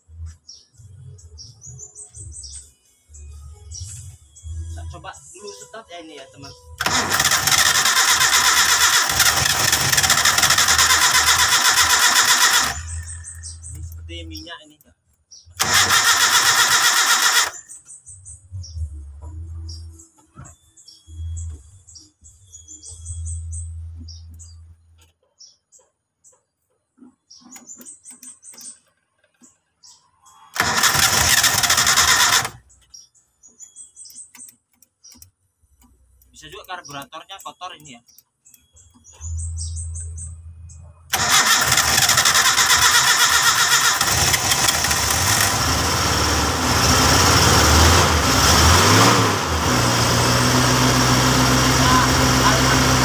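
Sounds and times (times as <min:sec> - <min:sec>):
starter motor cranking engine: 0:06.8 - 0:14.0, 0:15.6 - 0:17.8, 0:30.5 - 0:32.6, 0:41.1 - 0:53.0.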